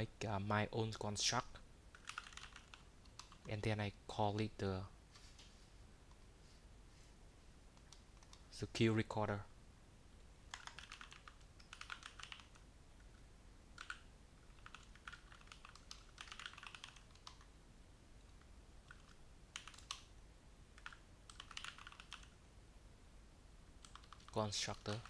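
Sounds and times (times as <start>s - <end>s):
faint keyboard typing: 1.9s - 3.6s, 7.7s - 8.6s, 10.5s - 17.5s, 18.2s - 22.4s, 23.8s - 25.0s.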